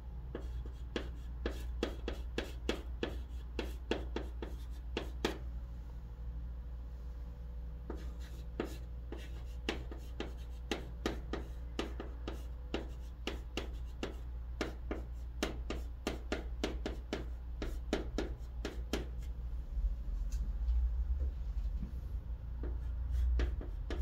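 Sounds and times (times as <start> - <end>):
low steady hum: 0.0 - 24.0
chalk writing on chalkboard: 0.3 - 5.4, 7.9 - 19.4, 22.6 - 24.0.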